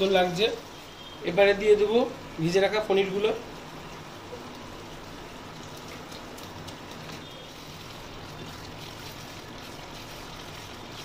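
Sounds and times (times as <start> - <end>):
oil sizzling in a frying pan: 0.0 - 11.0
spatula stirring in pan: 6.2 - 11.0.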